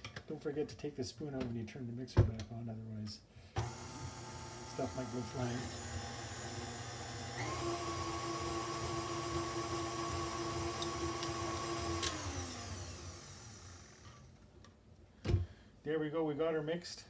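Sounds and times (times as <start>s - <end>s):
stand mixer motor whining: 3.6s - 14.3s.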